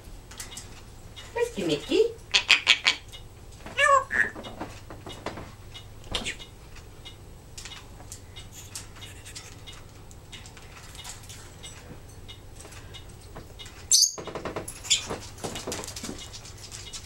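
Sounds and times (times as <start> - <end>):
parrot claws scratching: 7.6 - 11.9, 12.6 - 17.0.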